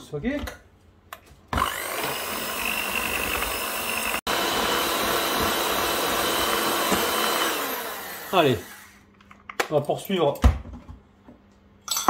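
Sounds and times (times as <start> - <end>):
electric hand mixer whine: 1.6 - 9.0.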